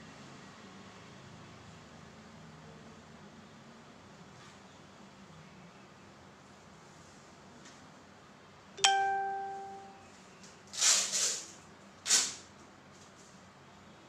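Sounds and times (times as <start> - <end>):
bell-like ding: 8.8 - 10.0.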